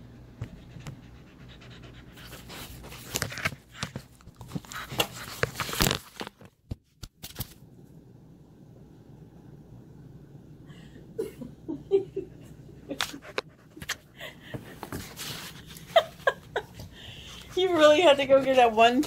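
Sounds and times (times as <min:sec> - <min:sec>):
puppy scraping and rustling cardboard: 0:14.8 - 0:16.2, 0:17.6 - 0:19.0.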